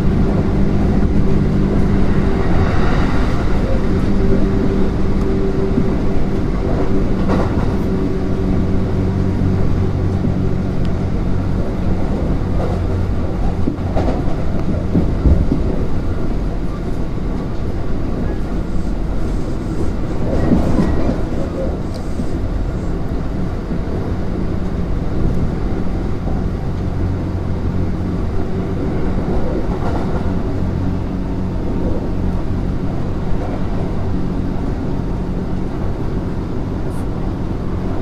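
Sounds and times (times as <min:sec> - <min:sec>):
low train hum: 0:00.0 - 0:38.0
train wheels rumbling on rail: 0:00.0 - 0:38.0.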